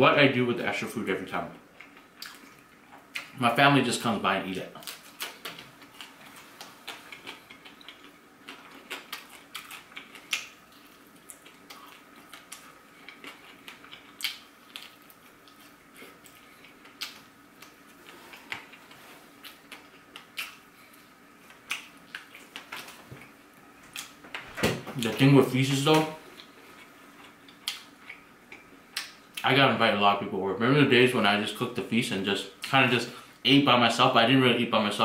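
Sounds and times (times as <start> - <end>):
faint steady hum: 0.0 - 35.0
chewing food: 1.8 - 3.4, 4.8 - 24.2, 26.3 - 29.4.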